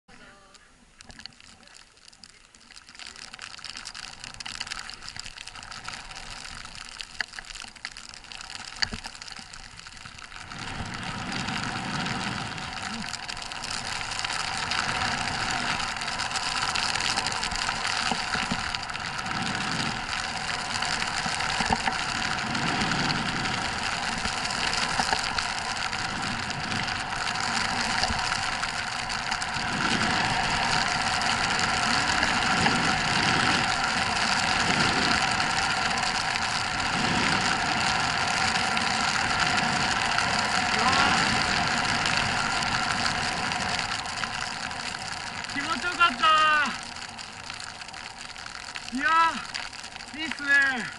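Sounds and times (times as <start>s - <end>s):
skis running through powder snow: 10.4s - 46.7s
wind rushing over microphone: 14.4s - 44.2s.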